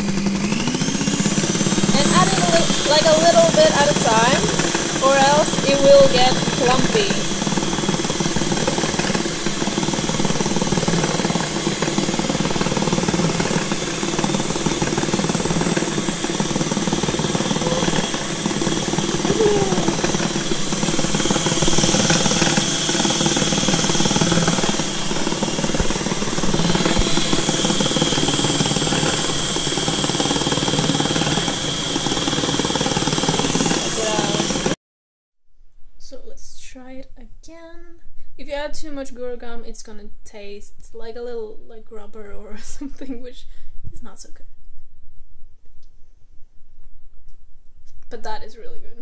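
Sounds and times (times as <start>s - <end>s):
stand mixer whirring: 0.0s - 34.8s.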